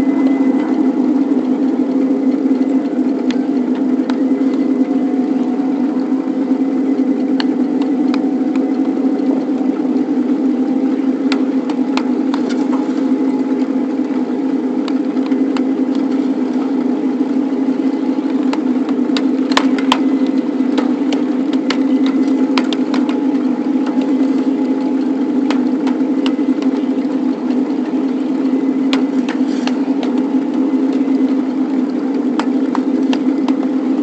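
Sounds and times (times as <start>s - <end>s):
miniature locomotive drone: 0.0s - 34.0s
sharp clicks and knocks: 11.3s - 12.9s, 18.3s - 24.2s.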